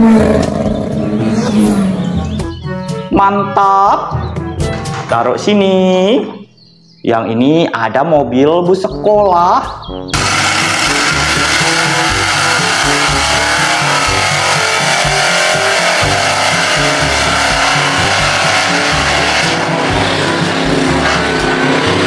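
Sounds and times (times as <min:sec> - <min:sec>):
truck engine running hard: 0:00.0 - 0:03.0, 0:10.1 - 0:22.0
background music: 0:00.0 - 0:22.0.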